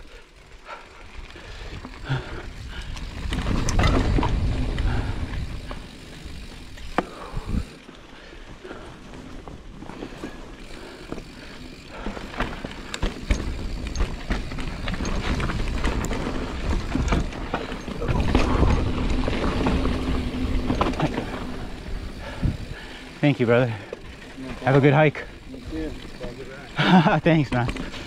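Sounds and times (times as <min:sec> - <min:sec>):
bike clicks and rattles: 0:00.0 - 0:28.0
bike tyres on dirt and rock: 0:00.0 - 0:28.0
wind rumble on microphone: 0:01.5 - 0:05.8, 0:22.0 - 0:22.9.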